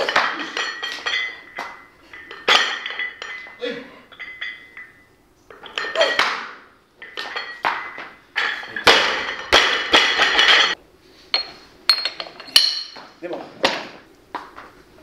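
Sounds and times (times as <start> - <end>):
barbell plates clanking: 0.0 - 10.8.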